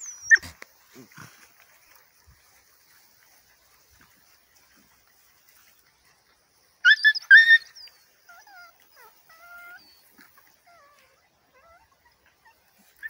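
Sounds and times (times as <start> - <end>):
puppy whining: 0.0 - 0.6, 6.8 - 13.0
puppy yelping: 0.0 - 0.6, 6.8 - 13.0.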